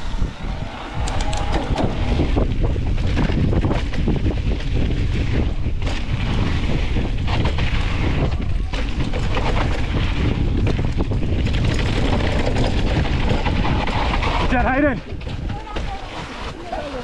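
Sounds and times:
mountain bike rolling on dirt: 0.0s - 17.0s
wind rush on microphone: 0.0s - 17.0s
knocks and rattles: 0.9s - 16.4s.

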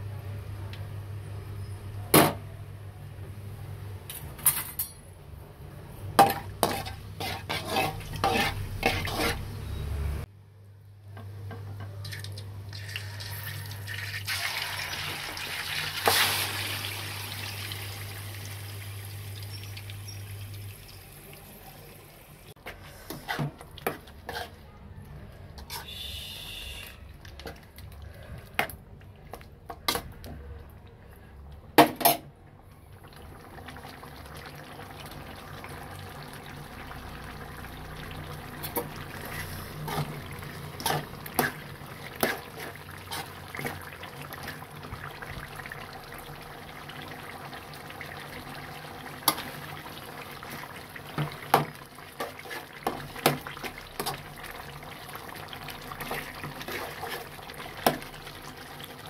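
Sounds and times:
spoon stirring gravy in metal pot: 6.2s - 9.5s.

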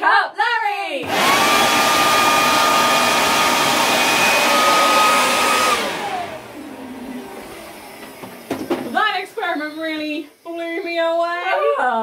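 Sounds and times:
electric air blower running: 1.0s - 9.4s
blower motor spinning down: 1.0s - 10.4s.

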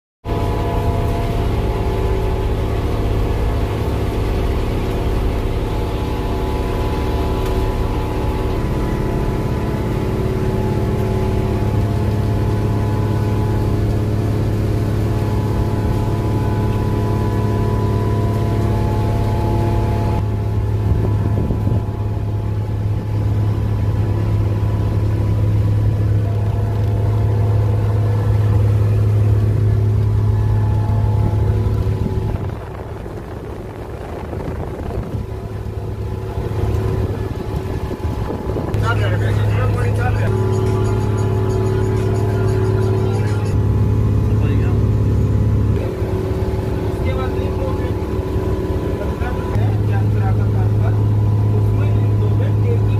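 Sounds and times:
diesel engine droning: 0.2s - 52.9s.

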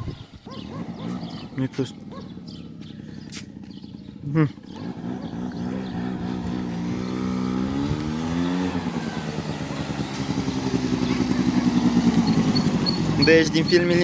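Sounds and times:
atv engine accelerating: 0.0s - 14.0s.

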